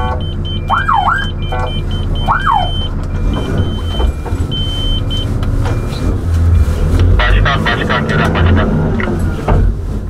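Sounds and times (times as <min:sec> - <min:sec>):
high electronic beeping: 0:00.0 - 0:08.9
vehicle engine idling: 0:00.0 - 0:10.0
electronic siren whoop: 0:00.6 - 0:04.0.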